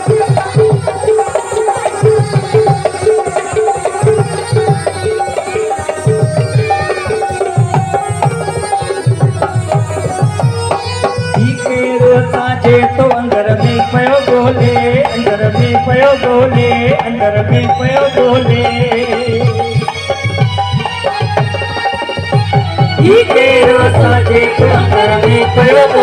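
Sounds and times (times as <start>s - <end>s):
sustained wavering melody: 0.0s - 13.0s
tabla rhythm: 0.0s - 26.0s.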